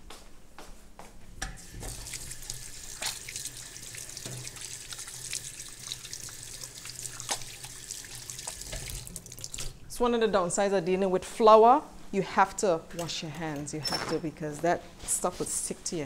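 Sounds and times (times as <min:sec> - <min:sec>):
kitchen tap running into sink: 0:01.4 - 0:09.8
water splashing: 0:01.7 - 0:09.8.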